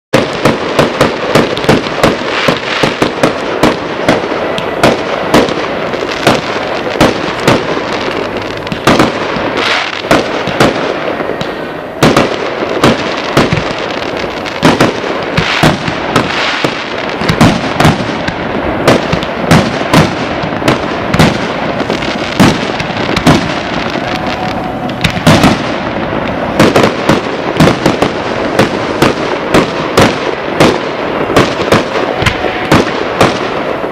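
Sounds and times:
firework crackling: 0.1 - 33.9
firework shells bursting: 0.1 - 33.9.

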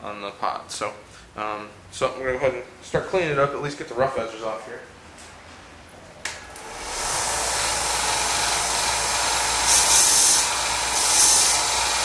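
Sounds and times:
belt sander running: 6.5 - 12.0
steel grinding on belt: 9.4 - 12.0.

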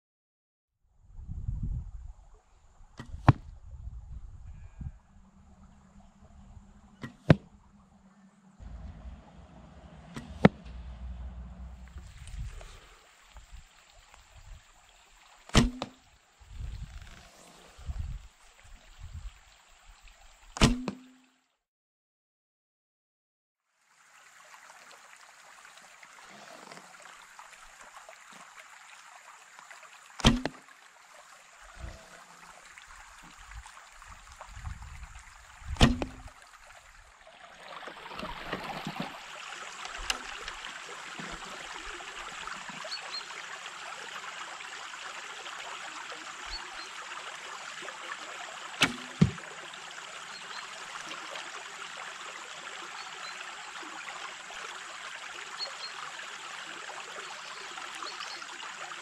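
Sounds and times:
shallow stream running: 1.9 - 21.5, 23.6 - 59.0
bow shot snap: 3.0 - 3.5, 7.0 - 7.5, 8.6 - 12.8, 15.5 - 16.0, 20.6 - 21.2, 30.2 - 30.6, 35.7 - 36.3, 48.8 - 49.5.

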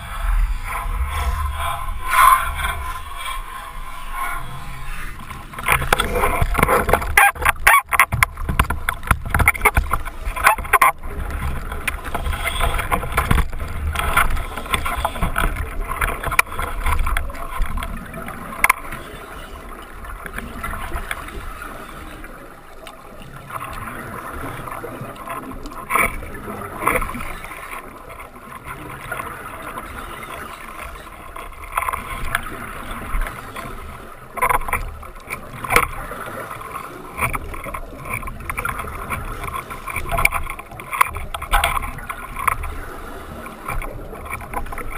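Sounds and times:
diver regulator breathing: 0.0 - 7.2, 11.2 - 17.2
gurgling bubbles underwater: 0.0 - 44.9.

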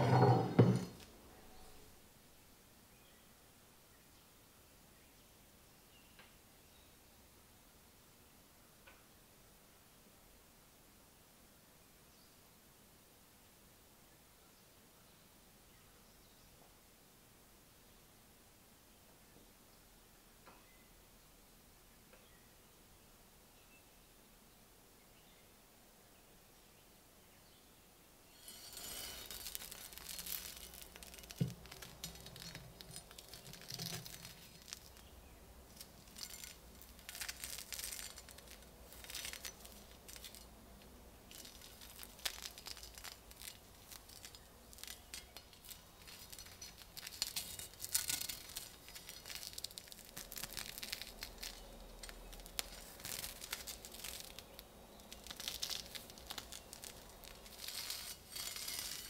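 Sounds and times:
glove rubbing over rough rust: 28.4 - 35.1, 35.7 - 59.0.

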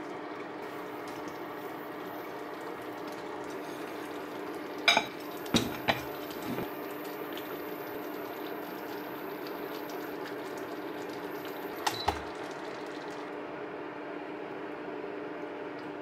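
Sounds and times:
glass bowl clinking on ceramic plate: 4.9 - 6.7.

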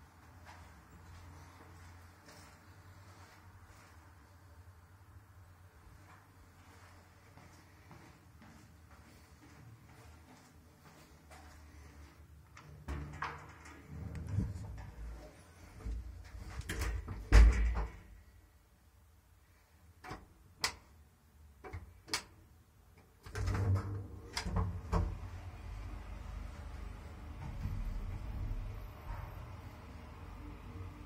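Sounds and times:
low rumble: 13.2 - 16.2, 24.7 - 31.0.

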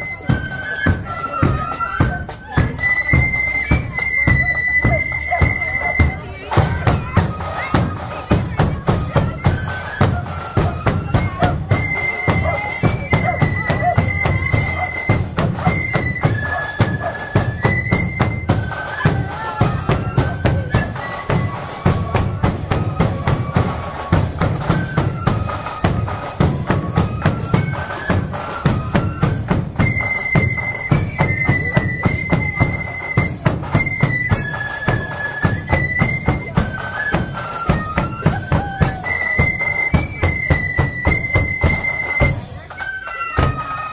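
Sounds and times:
flute melody: 0.0 - 43.9
marching drums: 0.0 - 43.9.

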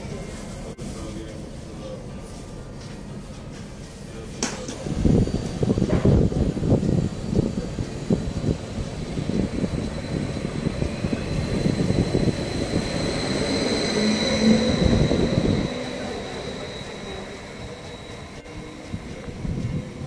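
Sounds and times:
train wheel and track rumble: 0.0 - 20.0
high electric whine: 4.8 - 20.0.

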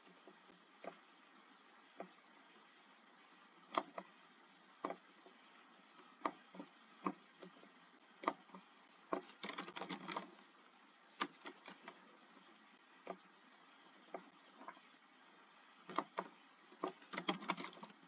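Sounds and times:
computer keyboard typing: 9.2 - 10.4, 11.2 - 12.0, 15.9 - 18.0.

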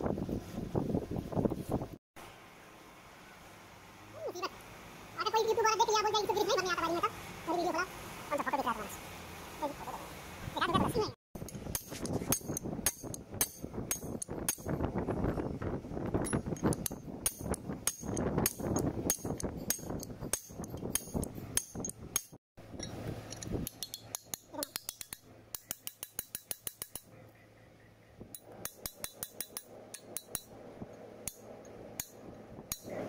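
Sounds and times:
hammer strikes on steel: 11.7 - 14.8, 17.2 - 22.4, 23.6 - 27.1, 28.4 - 30.5.

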